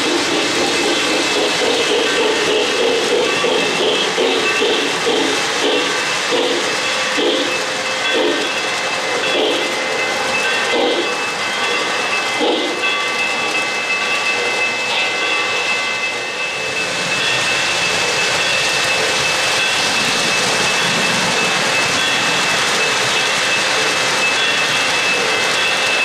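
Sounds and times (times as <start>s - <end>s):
model train wheels rumbling: 0.0s - 16.2s.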